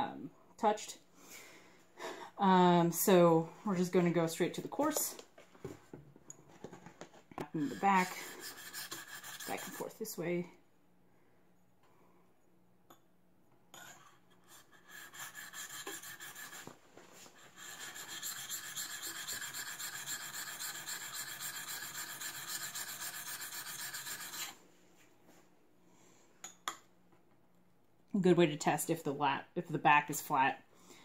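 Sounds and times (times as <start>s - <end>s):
plane iron scraping on sharpening plate: 17.6s - 24.5s.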